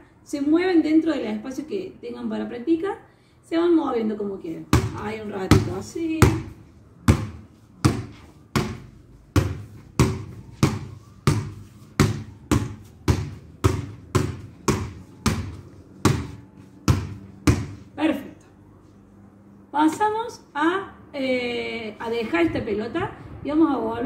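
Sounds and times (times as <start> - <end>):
basketball bouncing on tiled floor: 4.7 - 17.9.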